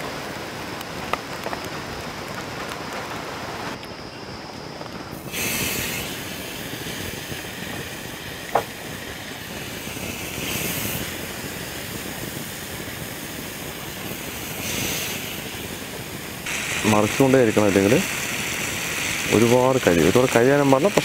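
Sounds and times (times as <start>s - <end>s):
chicken sizzling on grill pan: 5.2s - 21.0s.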